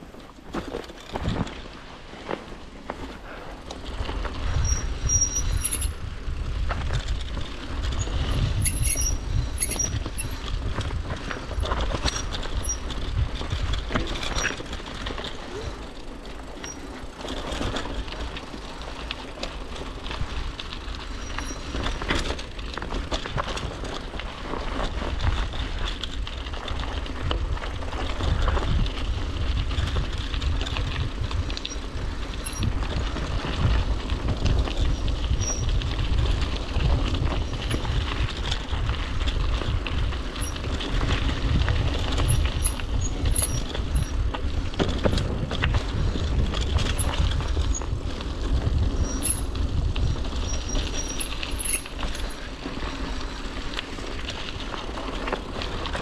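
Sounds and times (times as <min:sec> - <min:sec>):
bike rattling over bumps: 0:00.0 - 0:56.0
tyres rolling over dirt and stones: 0:00.0 - 0:56.0
wind rumble on microphone: 0:00.0 - 0:56.0.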